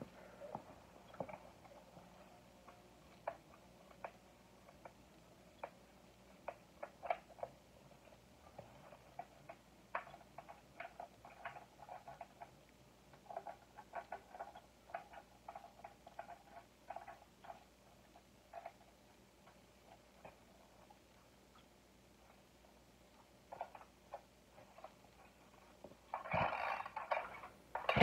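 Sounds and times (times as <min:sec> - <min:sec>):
chainsaw controls clicking: 0:26.2 - 0:28.0.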